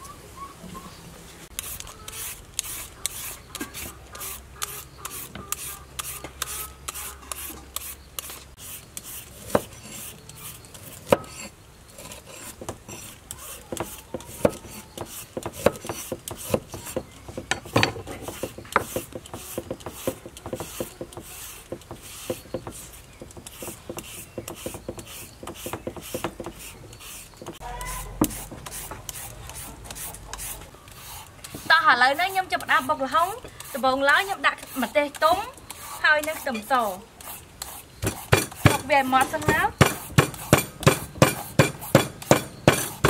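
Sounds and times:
knife chopping on wooden board: 13.7 - 26.7, 38.0 - 43.0.

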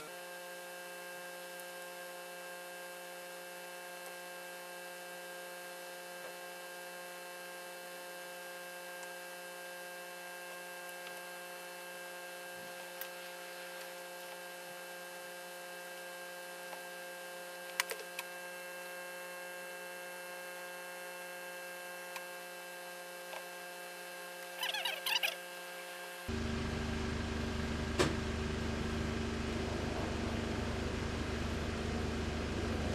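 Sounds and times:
electrical hum: 23.2 - 32.9.

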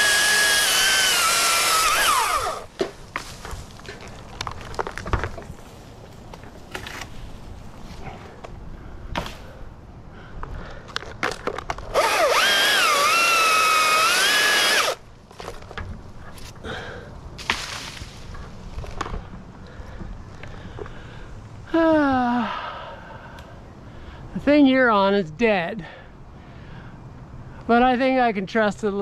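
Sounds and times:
battery chainsaw whining and cutting: 0.0 - 2.7, 11.9 - 15.0.

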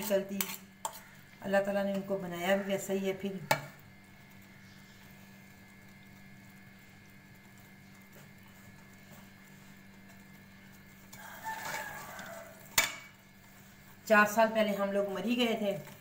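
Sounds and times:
metal spoon scraping a metal pan: 0.0 - 1.2, 11.0 - 14.0
faint steady hum: 0.0 - 16.0.

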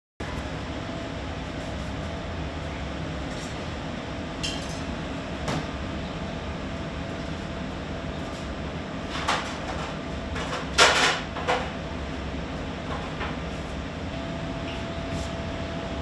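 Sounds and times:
kitchen equipment humming: 0.2 - 16.0.

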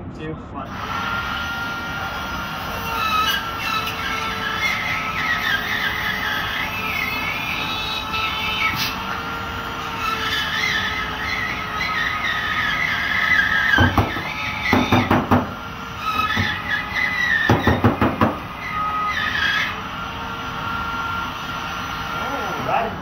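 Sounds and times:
drywall router whining: 0.7 - 23.0.

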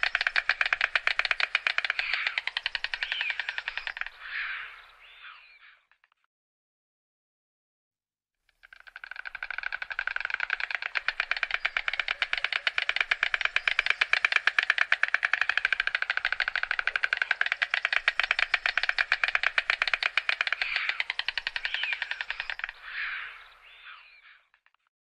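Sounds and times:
stork bill clattering: 0.0 - 4.2, 8.6 - 23.3.

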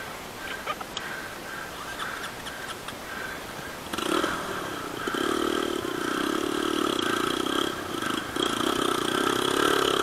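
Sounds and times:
motorcycle engine running: 3.9 - 10.0.

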